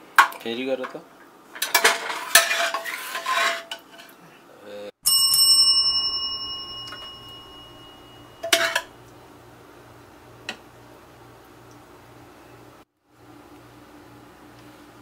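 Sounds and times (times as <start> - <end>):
metal spoon clattering on pot: 1.6 - 4.1, 8.4 - 8.9
bell-like metallic ring: 5.0 - 8.9.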